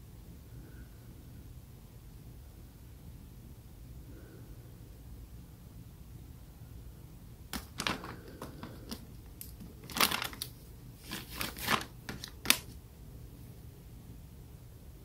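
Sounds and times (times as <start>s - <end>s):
tissue crinkling and rustling: 7.6s - 12.8s.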